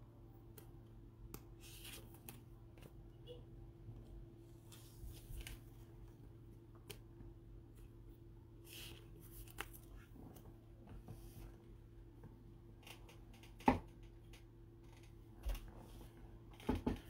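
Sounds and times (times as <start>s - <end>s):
steady low hum: 0.0s - 17.0s
trading cards rustling: 8.6s - 10.1s.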